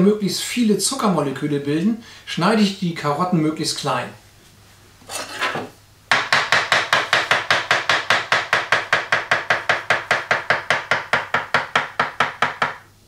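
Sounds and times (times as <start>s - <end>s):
knife chopping on cutting board: 5.1s - 12.8s.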